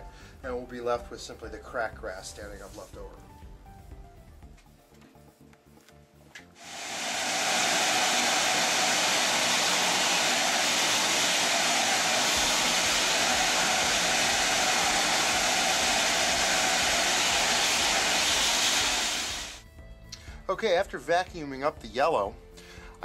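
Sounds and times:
vacuum cleaner rushing air: 0:06.6 - 0:19.6.

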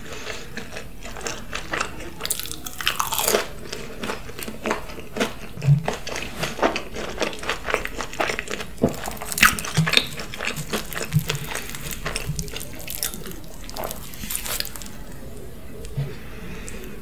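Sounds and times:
pizza slice crackling as pulled: 0:10.8 - 0:15.2.

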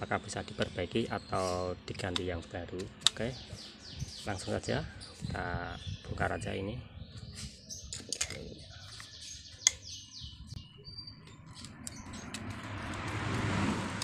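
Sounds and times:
birds chirping: 0:00.0 - 0:13.3
broad rushing noise: 0:12.1 - 0:14.0.

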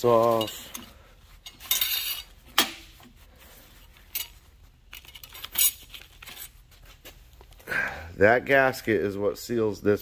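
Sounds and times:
metal clinking and scraping: 0:00.0 - 0:06.8.

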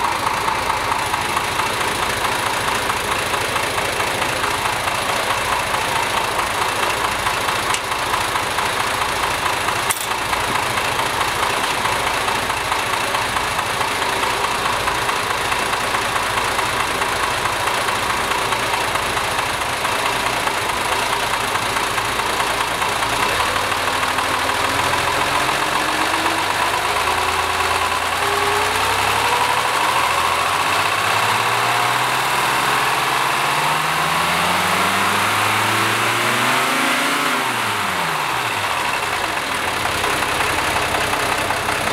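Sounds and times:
car engine revving: 0:23.0 - 0:41.9.

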